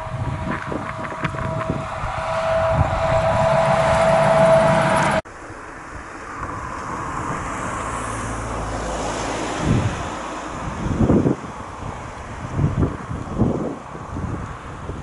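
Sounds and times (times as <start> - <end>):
coach driving past: 0.0 - 5.2
truck engine hum with road noise: 0.0 - 15.0.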